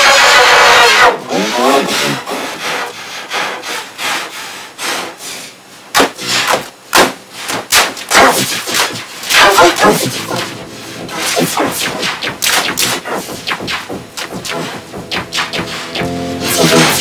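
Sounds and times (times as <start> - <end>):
keyboard being pounded and scraped: 9.8 - 17.0.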